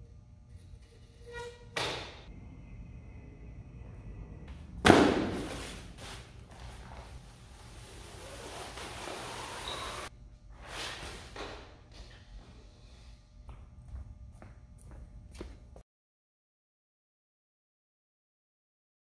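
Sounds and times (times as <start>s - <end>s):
bag thudding on floor: 4.8s - 5.8s.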